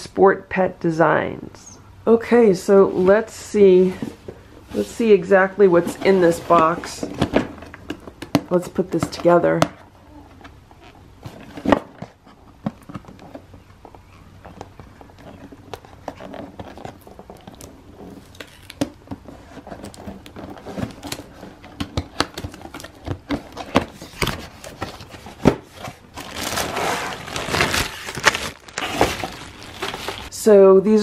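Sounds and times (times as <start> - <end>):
plastic bag crinkling: 25.9 - 30.3.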